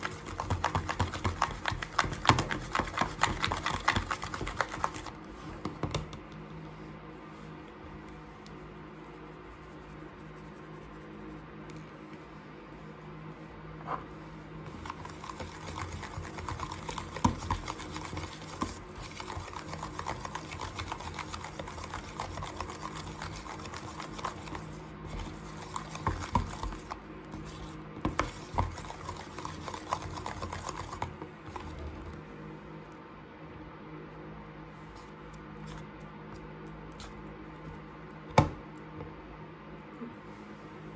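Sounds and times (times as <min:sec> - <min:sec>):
spoon stirring sticky slime: 0:00.0 - 0:06.1, 0:14.6 - 0:31.8, 0:35.0 - 0:37.3.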